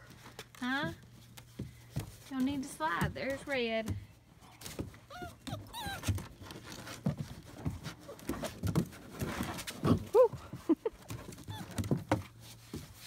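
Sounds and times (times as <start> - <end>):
puppies whining: 5.0 - 6.8, 11.2 - 12.0.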